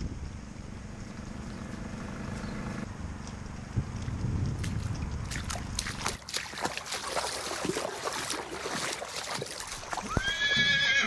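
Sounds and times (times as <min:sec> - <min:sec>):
water splashing and trickling: 0:03.1 - 0:11.0
water dripping: 0:04.0 - 0:10.4
horse whinnying: 0:10.0 - 0:11.0.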